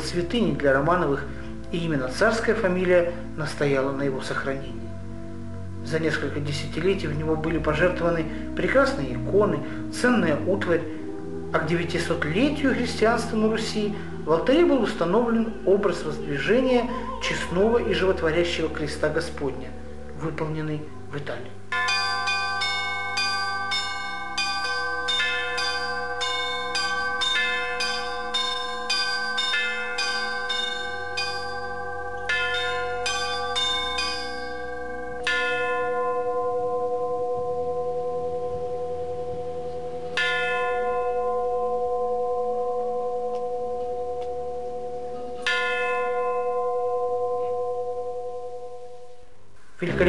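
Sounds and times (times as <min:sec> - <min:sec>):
small church bells chiming: 0:21.7 - 0:49.1
single bell strokes ringing out: 0:21.8 - 0:36.0.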